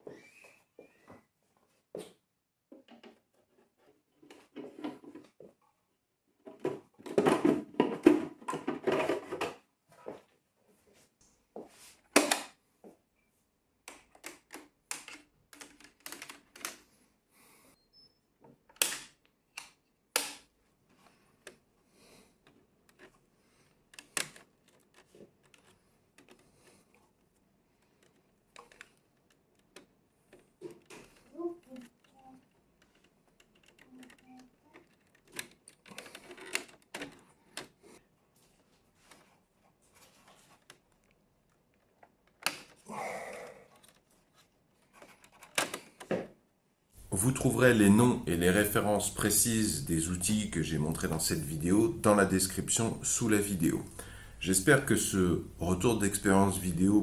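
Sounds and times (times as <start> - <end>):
plastic cover rattling and scraping: 2.9 - 5.4, 6.4 - 9.7, 30.4 - 37.7
tools clicking and knocking: 13.8 - 16.8, 27.8 - 37.7.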